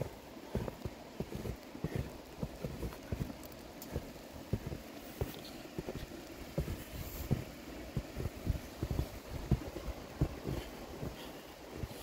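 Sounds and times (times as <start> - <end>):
faint hiss: 0.0 - 12.0
footsteps in deep snow: 0.0 - 12.0.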